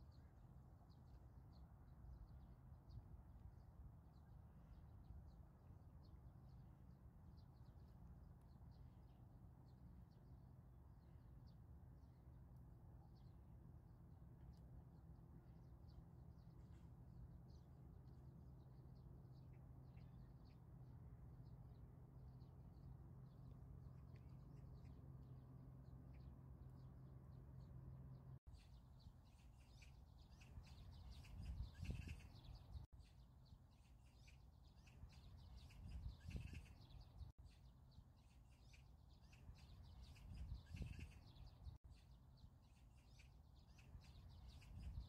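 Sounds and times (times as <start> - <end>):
birds chirping: 25.9 - 45.0
wind gusts: 30.4 - 32.9, 35.3 - 37.3.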